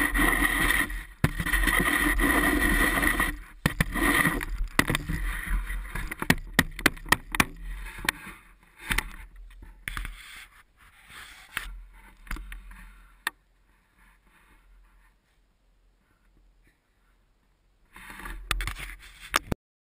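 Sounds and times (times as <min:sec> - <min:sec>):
snow shovel scraping and knocking: 0:00.0 - 0:13.0.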